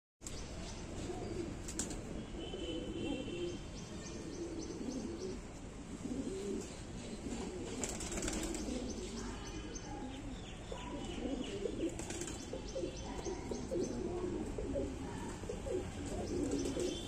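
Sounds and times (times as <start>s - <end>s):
pigeons cooing: 4.2s - 17.0s.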